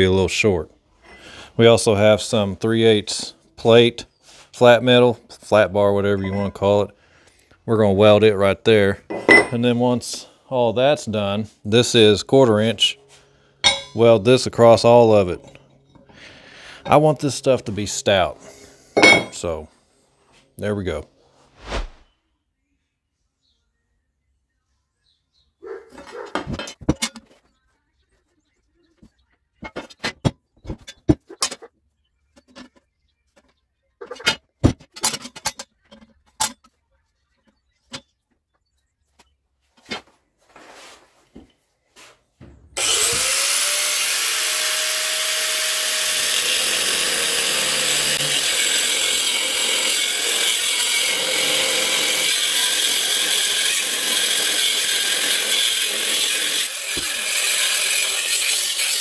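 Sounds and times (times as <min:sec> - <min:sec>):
tools clicking and knocking on metal: 0:13.6 - 0:14.0, 0:32.4 - 0:36.8
angle grinder cutting steel: 0:42.8 - 0:59.0.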